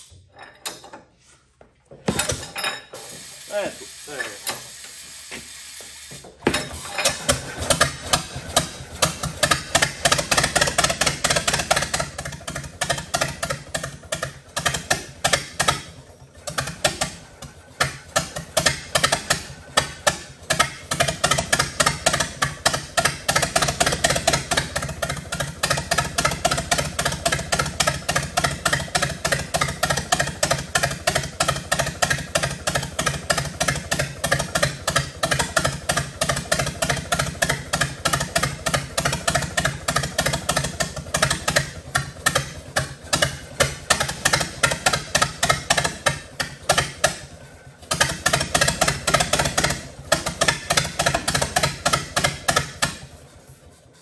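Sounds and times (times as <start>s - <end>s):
tractor engine running: 3.2s - 54.0s.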